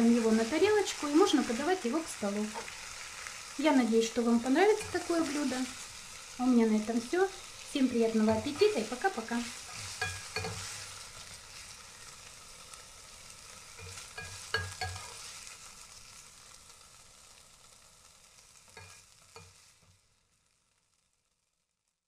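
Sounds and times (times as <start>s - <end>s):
spatula scraping a frying pan: 0.0s - 3.6s, 4.2s - 6.2s, 7.4s - 12.8s, 13.4s - 16.0s, 18.7s - 19.9s
soft sizzle from pan: 0.0s - 22.0s.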